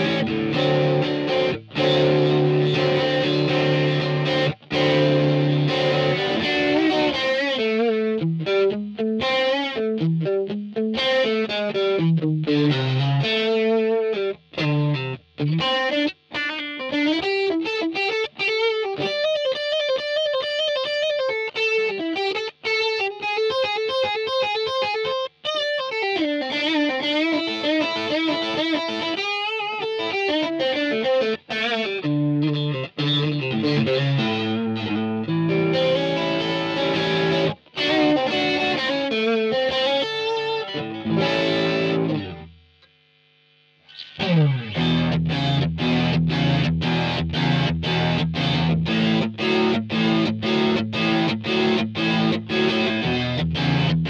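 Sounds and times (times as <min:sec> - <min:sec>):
overdriven electric guitar: 0:00.0 - 0:54.0.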